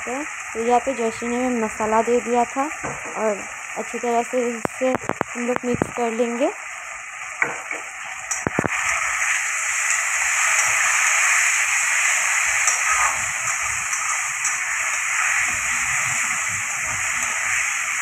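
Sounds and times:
onions sizzling in hot oil: 0:00.0 - 0:18.0
sharp knocks: 0:07.4 - 0:07.9.

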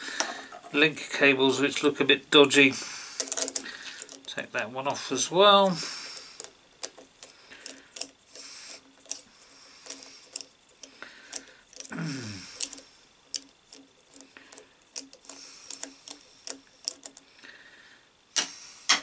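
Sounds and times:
small metallic clicks and taps: 0:12.6 - 0:17.2.

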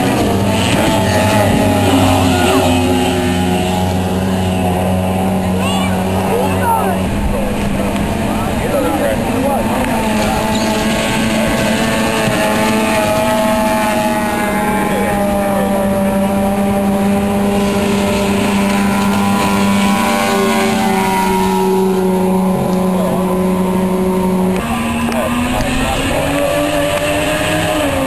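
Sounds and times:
racing boat engine drone: 0:00.0 - 0:28.0.

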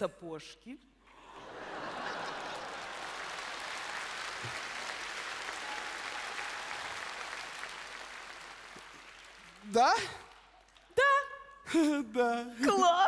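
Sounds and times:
audience applauding: 0:01.3 - 0:10.8.

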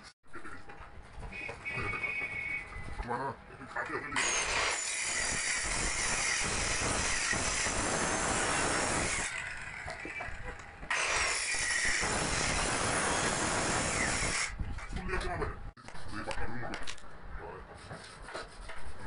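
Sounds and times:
circular saw cutting wood: 0:04.2 - 0:14.5.

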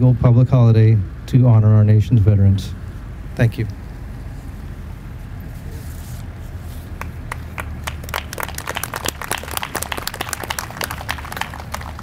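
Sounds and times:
audience clapping: 0:07.0 - 0:12.0.

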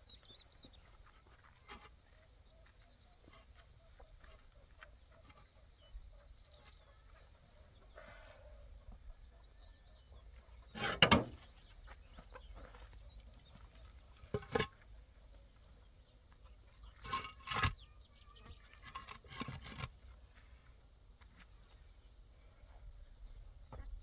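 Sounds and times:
concrete blocks knocking and scraping: 0:10.7 - 0:11.6, 0:14.2 - 0:14.9, 0:16.8 - 0:20.0.

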